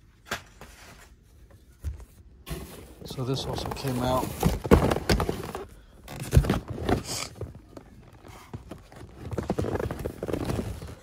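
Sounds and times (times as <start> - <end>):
packaging rustling and clattering: 2.5 - 11.0
cardboard boxes knocking: 3.5 - 11.0.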